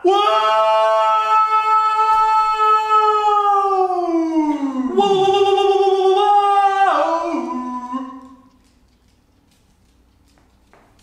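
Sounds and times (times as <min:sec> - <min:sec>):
men howling long notes: 0:00.0 - 0:08.5.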